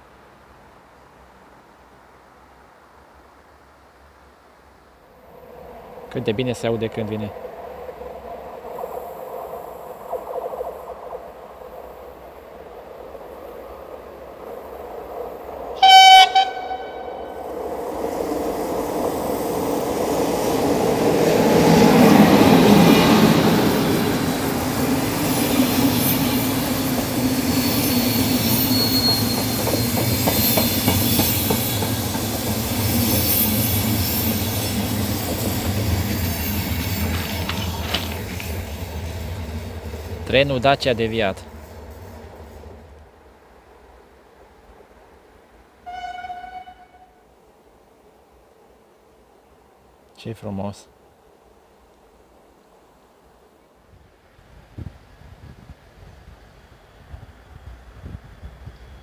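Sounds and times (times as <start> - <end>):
locomotive rumbling past: 5.2 - 47.2
train wheels rolling on rails: 7.0 - 45.8
train horn blast: 15.8 - 17.5, 45.8 - 47.2.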